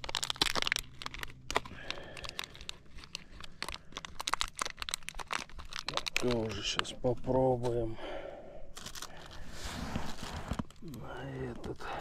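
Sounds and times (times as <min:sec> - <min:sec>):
foam bait crinkling and clicking: 0:00.0 - 0:07.8, 0:08.7 - 0:12.0.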